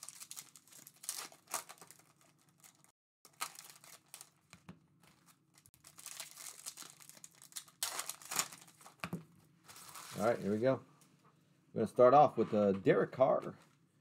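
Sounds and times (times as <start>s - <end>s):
foil wrapper tearing and crinkling: 0.0s - 9.0s, 9.7s - 10.7s.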